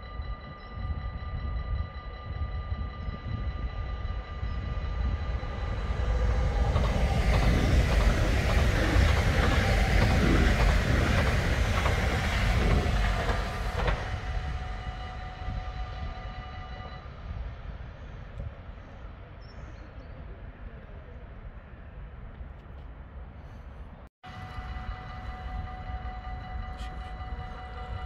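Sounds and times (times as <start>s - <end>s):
electric train passing: 0.0s - 19.3s, 24.3s - 28.0s
train wheels clacking over rail joints: 5.5s - 14.7s.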